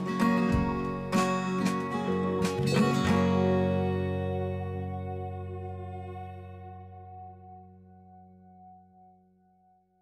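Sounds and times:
acoustic guitar strummed: 0.0s - 7.0s.

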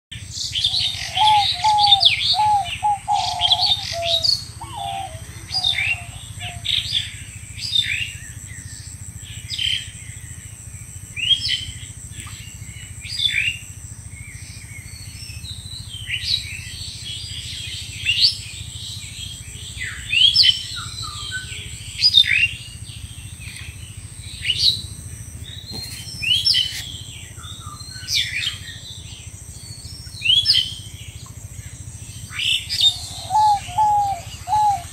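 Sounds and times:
small birds chirping: 0.2s - 34.9s
lower bird call notes: 0.4s - 7.2s, 32.2s - 34.9s.

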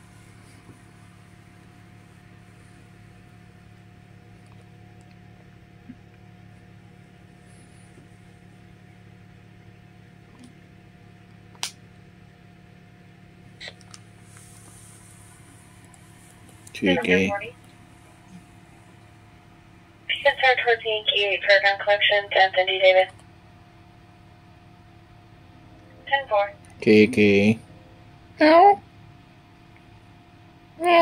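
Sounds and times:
steady low hum: 0.0s - 31.0s.

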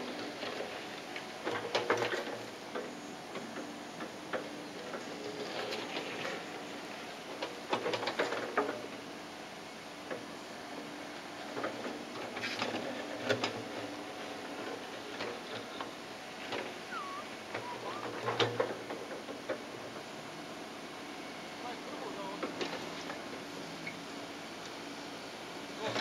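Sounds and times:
excavator engine running: 10.7s - 26.0s.

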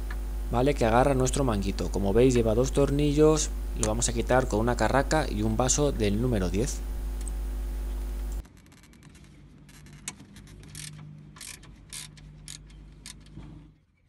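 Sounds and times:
steady hum: 0.0s - 8.5s
ratchet wrench clicking: 10.6s - 12.7s.

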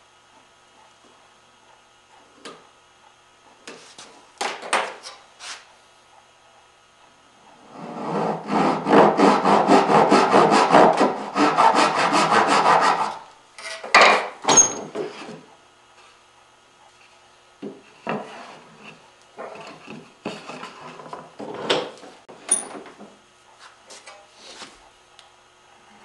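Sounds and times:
hand saw cutting wood: 7.6s - 13.9s.

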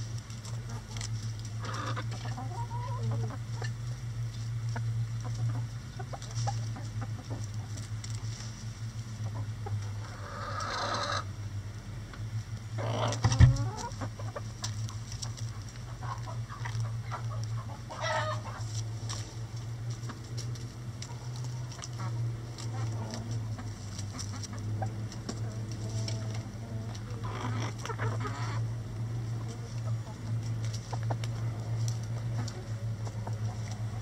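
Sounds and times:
chickens clucking: 0.0s - 34.0s
chicken squawking: 1.6s - 3.4s, 9.9s - 11.3s, 12.8s - 14.5s, 15.9s - 18.7s, 27.1s - 28.7s.

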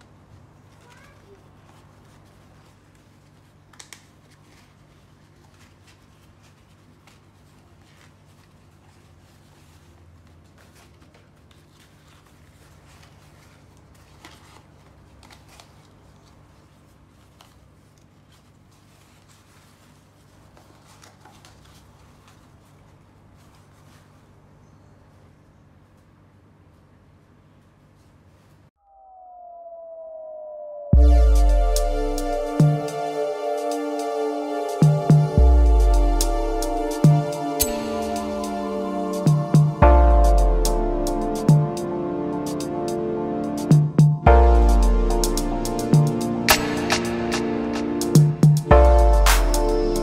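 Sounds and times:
rustling and crinkling of fabric: 0.0s - 28.8s.

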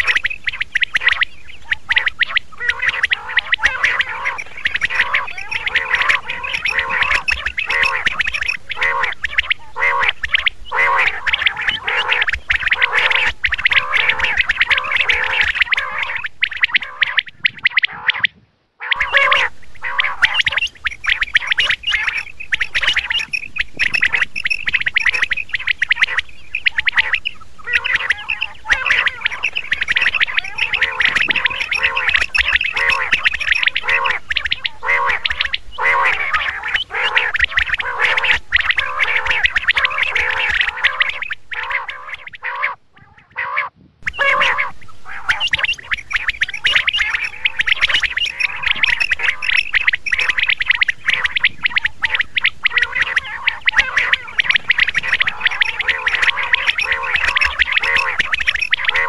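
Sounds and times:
quail calling: 0.0s - 59.0s.

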